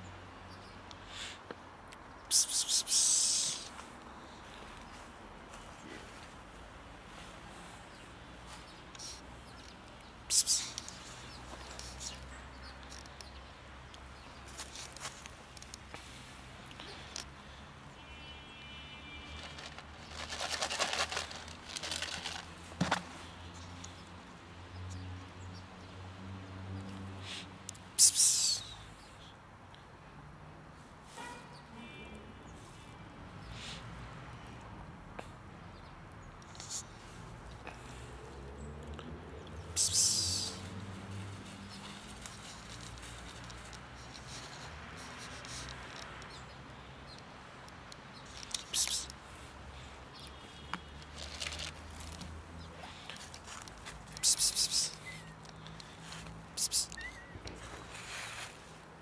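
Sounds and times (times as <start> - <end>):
dry leaves crackling under paws: 19.3 - 23.0, 39.7 - 46.2, 51.0 - 58.6
footsteps on dry leaves: 19.3 - 23.1, 51.1 - 52.3.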